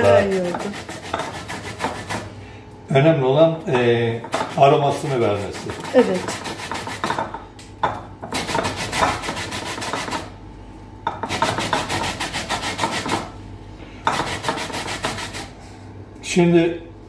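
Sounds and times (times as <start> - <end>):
peel grating on metal grater: 0.0 - 2.3, 4.3 - 7.1, 8.4 - 10.3, 11.3 - 13.2, 14.1 - 15.5.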